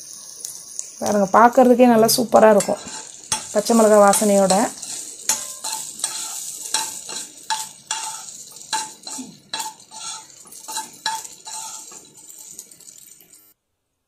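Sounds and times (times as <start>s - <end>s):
light sizzle: 0.0s - 13.7s
spatula scraping and knocking pan: 2.0s - 13.1s.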